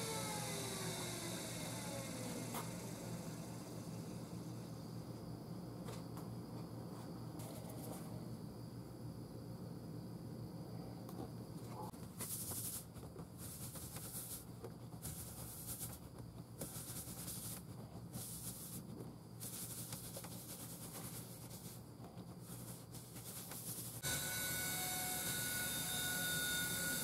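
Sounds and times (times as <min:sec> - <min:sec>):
steady low hum: 0:00.0 - 0:27.0
paper towel wiping wooden bowl: 0:12.2 - 0:24.0.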